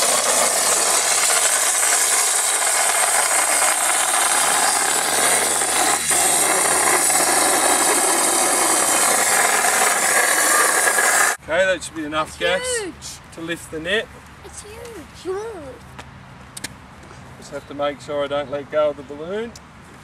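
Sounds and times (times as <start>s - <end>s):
gas hissing from valve: 0.0s - 11.4s.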